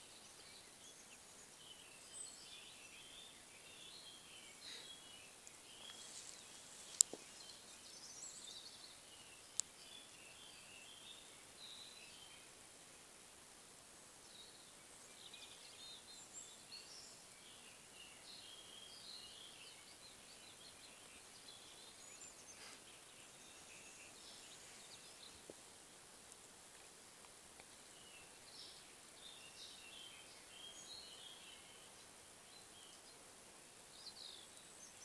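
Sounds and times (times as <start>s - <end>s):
faint birdsong: 0.0s - 35.0s
steady hiss: 0.0s - 35.0s.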